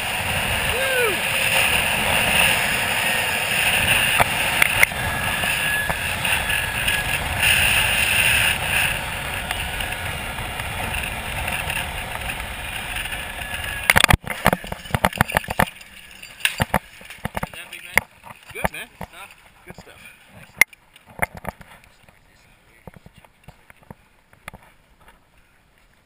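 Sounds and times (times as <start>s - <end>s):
wind rushing over camera: 0.0s - 15.8s
zip-line trolley whirring on cable: 0.0s - 17.3s.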